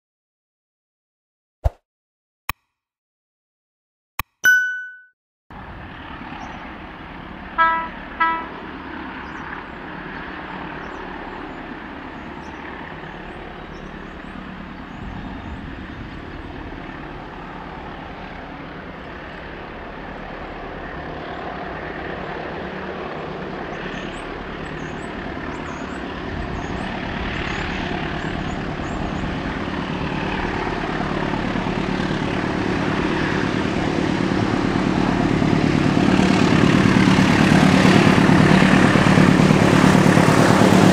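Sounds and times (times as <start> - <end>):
diesel locomotive engines: 5.5 - 40.9
train horn toots: 7.6 - 8.7.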